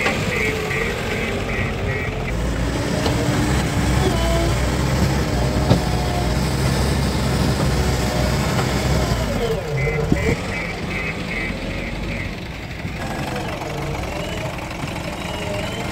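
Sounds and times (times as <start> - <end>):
diesel engine under load: 0.0 - 15.9.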